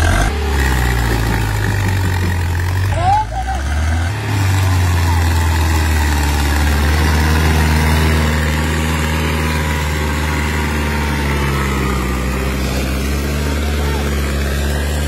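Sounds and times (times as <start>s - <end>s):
tractor diesel engine under load: 0.0s - 15.0s.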